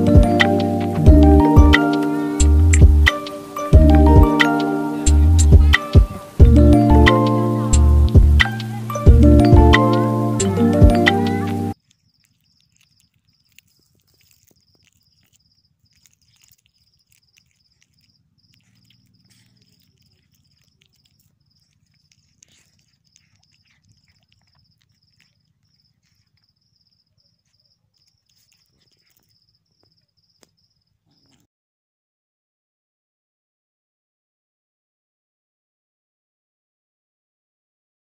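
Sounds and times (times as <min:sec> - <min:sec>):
cricket chirping: 0:00.3 - 0:31.5
low hum: 0:06.4 - 0:11.0.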